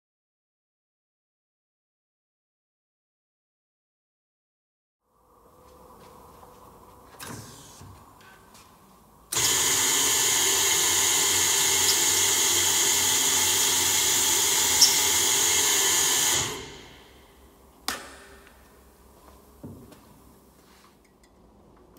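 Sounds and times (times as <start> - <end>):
drill running with hissy sound: 9.3 - 17.3.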